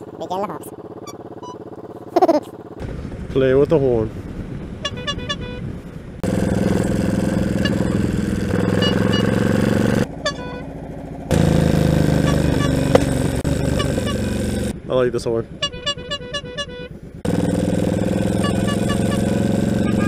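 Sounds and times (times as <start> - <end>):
motorcycle engine: 0.0 - 20.0
motorcycle horn beeps: 1.0 - 1.8, 4.8 - 5.7, 7.5 - 10.7, 12.1 - 13.0, 13.7 - 14.4, 15.5 - 17.0, 18.2 - 20.0
wind noise: 2.8 - 6.2.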